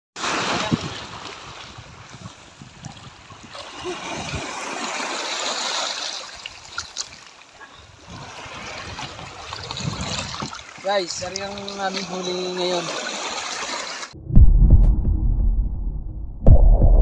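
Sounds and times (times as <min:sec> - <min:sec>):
seawater splashing around legs: 0:03.5 - 0:07.4, 0:08.1 - 0:14.2.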